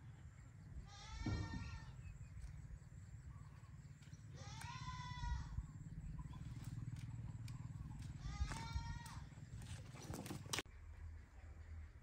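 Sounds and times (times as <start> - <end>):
drawn-out animal cries: 0.8 - 10.6.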